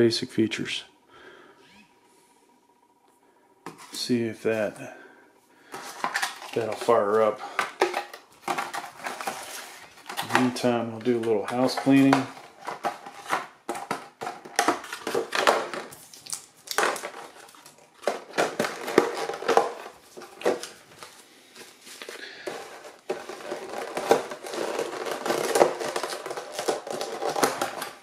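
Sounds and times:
packaging crinkling and rustling: 0:05.7 - 0:28.0.

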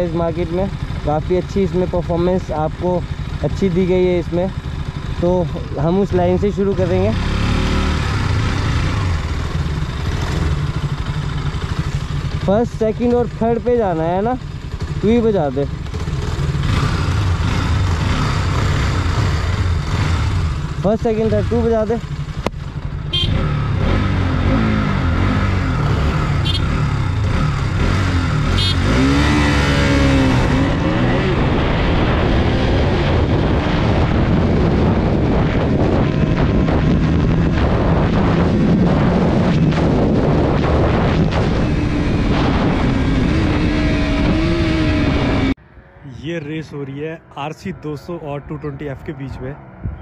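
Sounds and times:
motorcycle engines revving hard: 0:00.0 - 0:45.6
short horn beeps: 0:23.1 - 0:23.4, 0:26.4 - 0:26.8, 0:28.5 - 0:28.9
wind rushing over microphone: 0:28.2 - 0:45.7.

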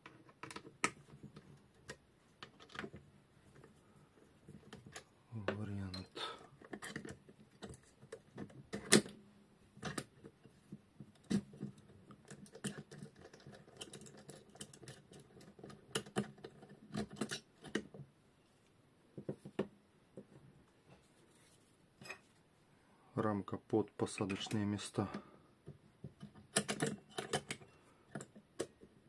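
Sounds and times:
metal parts clicking and knocking: 0:04.5 - 0:09.2, 0:11.1 - 0:18.0, 0:26.1 - 0:28.9.

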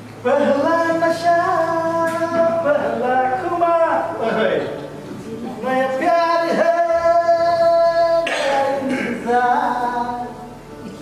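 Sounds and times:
person singing: 0:00.2 - 0:03.7, 0:05.2 - 0:11.0.

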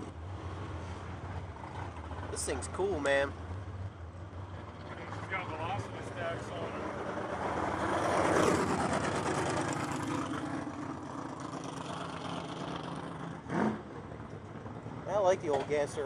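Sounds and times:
drag car engines idling: 0:08.7 - 0:16.0.

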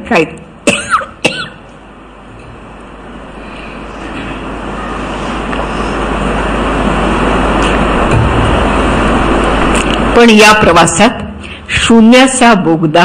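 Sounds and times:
low hum: 0:01.6 - 0:12.1
steady rushing noise: 0:02.0 - 0:12.3.

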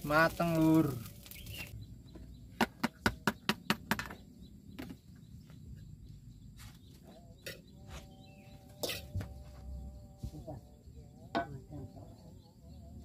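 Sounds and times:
spatula scraping a wok: 0:08.8 - 0:09.2.

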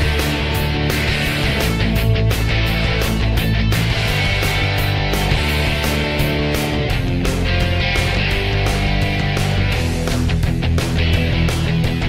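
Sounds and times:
loud rock music: 0:00.0 - 0:12.0.

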